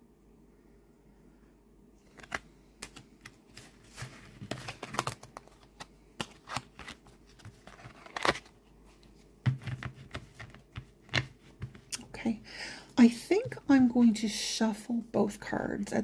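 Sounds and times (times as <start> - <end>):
cards tapping and sliding: 2.1 - 8.5, 9.5 - 11.9.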